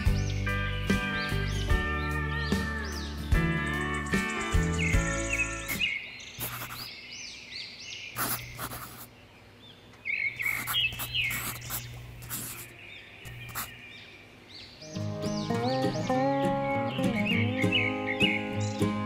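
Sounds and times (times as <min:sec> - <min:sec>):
small birds chirping: 0:00.0 - 0:19.0
short scratchy noises: 0:05.7 - 0:06.9, 0:08.2 - 0:09.1, 0:10.4 - 0:12.7, 0:13.3 - 0:13.8.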